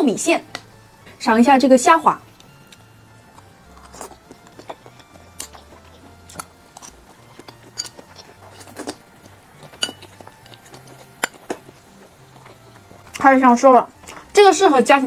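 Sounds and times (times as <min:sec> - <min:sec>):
person chewing and mouth smacks: 0:02.4 - 0:13.3, 0:13.9 - 0:14.3.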